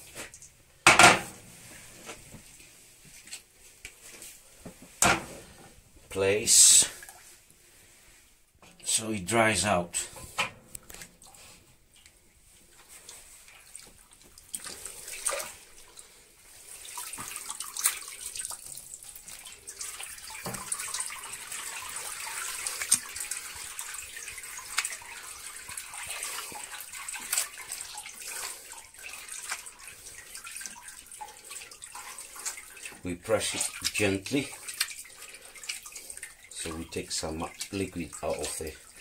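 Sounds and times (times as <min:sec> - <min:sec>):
whey splashing and squelching: 0:10.9 - 0:39.0
sharp splashes: 0:14.4 - 0:16.0, 0:16.6 - 0:39.0.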